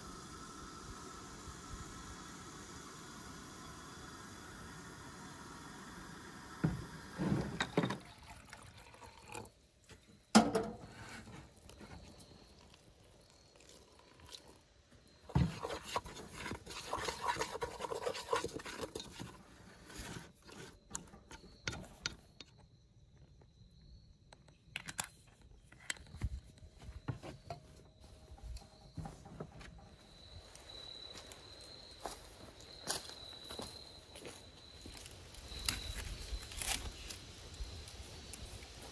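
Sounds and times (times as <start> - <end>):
wooden spoon scraping through flour: 15.3 - 21.0.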